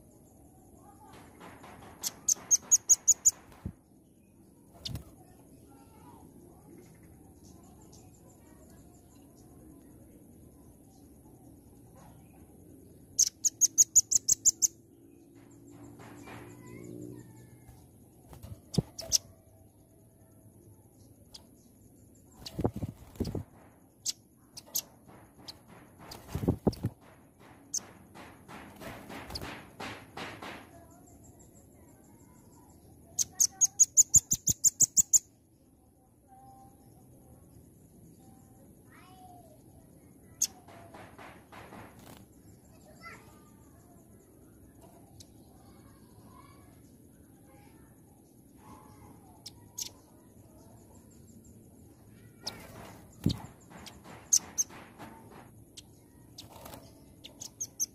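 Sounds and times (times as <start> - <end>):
bird sharp high chirps: 2.0 - 3.7, 4.7 - 5.4, 13.0 - 19.4, 21.0 - 27.0, 32.2 - 35.3, 48.7 - 51.4, 52.1 - 54.9, 55.7 - 57.9
bird wing flaps: 4.7 - 5.2, 22.4 - 23.6, 24.6 - 30.6, 41.6 - 42.3, 52.4 - 55.2, 56.4 - 56.9.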